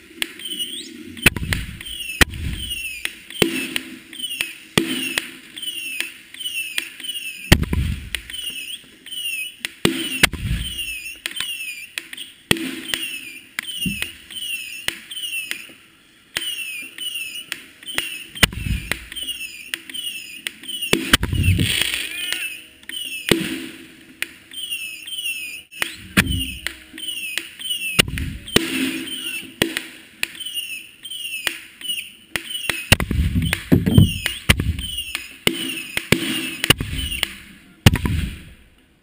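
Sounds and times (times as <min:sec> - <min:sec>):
fireworks launch reports: 0:00.1 - 0:38.7
low rumbling boom: 0:10.2 - 0:10.8.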